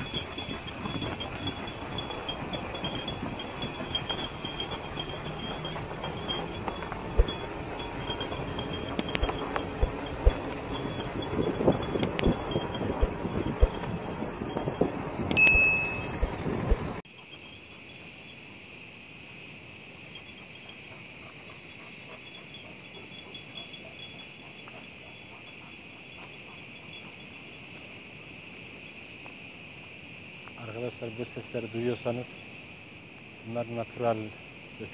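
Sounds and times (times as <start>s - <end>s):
car rolling over dirt road: 0.0s - 17.0s
forest insects chorus: 0.0s - 34.9s
brief high tone: 15.3s - 16.2s.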